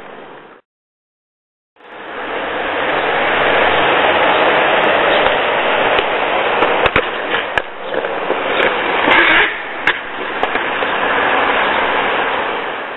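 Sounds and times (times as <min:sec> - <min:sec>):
steady rushing noise: 0:01.8 - 0:12.9
skateboard scrape: 0:04.7 - 0:12.9
skateboard clacking on paving: 0:05.1 - 0:11.2.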